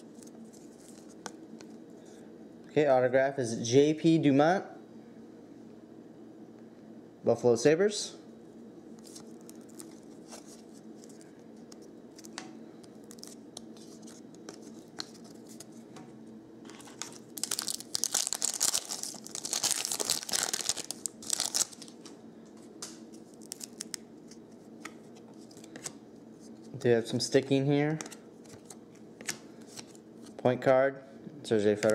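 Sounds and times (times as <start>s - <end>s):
foil wrapper crackling: 9.0s - 11.3s, 12.2s - 15.6s, 16.7s - 22.1s, 23.3s - 24.0s
cards being handled: 9.0s - 15.8s, 16.7s - 22.2s.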